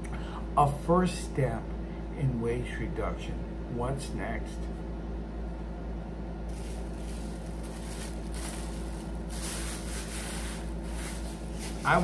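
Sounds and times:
low hum: 6.4s - 12.0s
plastic bag rustling: 6.5s - 12.0s.

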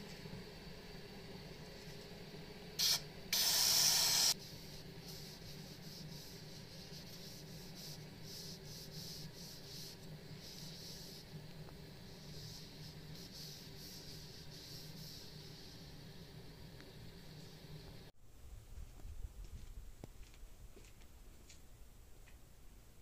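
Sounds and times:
aerosol spray can hissing: 2.8s - 16.0s.

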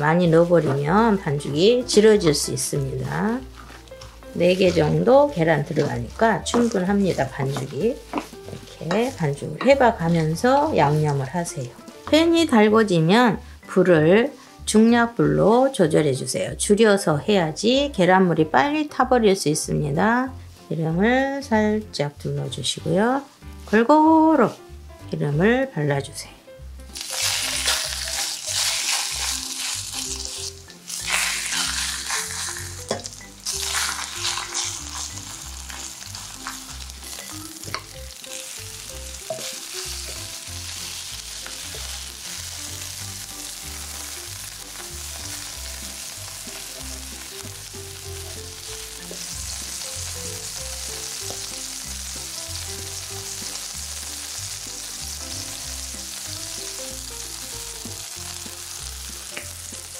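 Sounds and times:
shrimp sizzling in oil: 0.0s - 14.8s, 26.8s - 59.9s.

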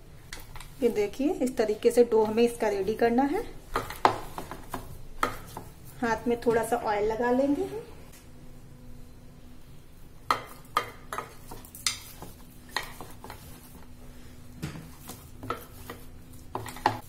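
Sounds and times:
faint steady hum: 0.0s - 17.0s
dough squishing: 10.8s - 13.9s.

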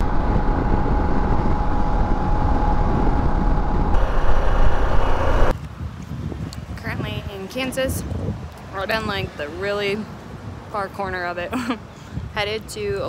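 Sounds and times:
motorcycle engine hum: 0.0s - 5.6s
wind rush on microphone: 0.0s - 13.0s.

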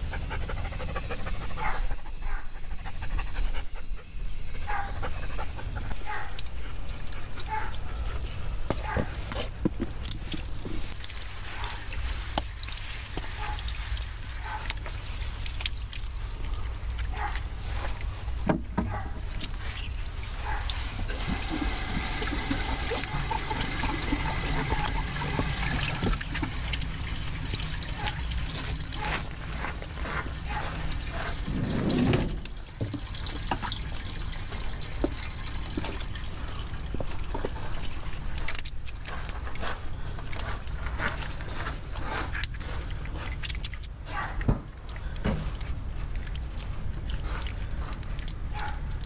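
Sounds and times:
water splashing: 6.0s - 31.1s.

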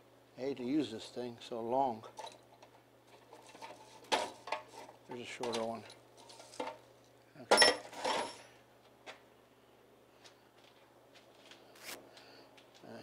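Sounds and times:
metal tools clinking: 2.1s - 2.5s, 3.1s - 6.8s, 7.5s - 8.5s.

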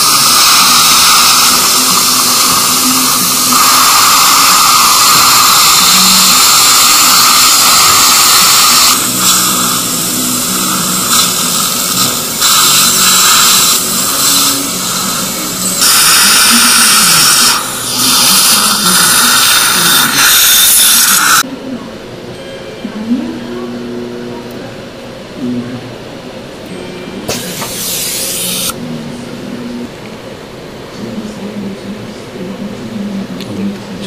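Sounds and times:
dental suction hissing: 0.0s - 21.4s, 27.3s - 28.8s.

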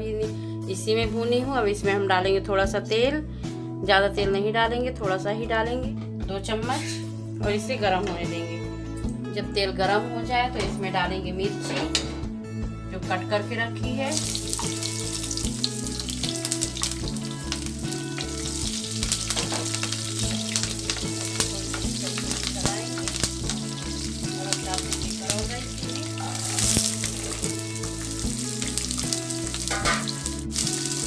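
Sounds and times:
chillies sizzling in hot oil: 14.1s - 31.0s.

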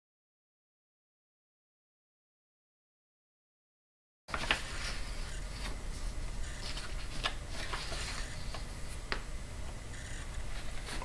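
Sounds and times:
steady low hum: 4.3s - 11.0s.

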